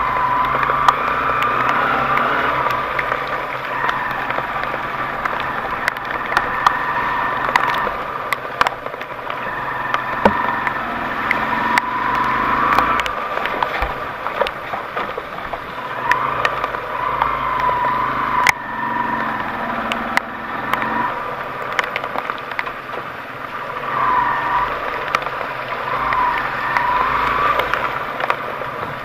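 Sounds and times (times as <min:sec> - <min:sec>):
car engine revving: 0:00.0 - 0:29.0
sharp clicks and knocks: 0:00.4 - 0:17.8.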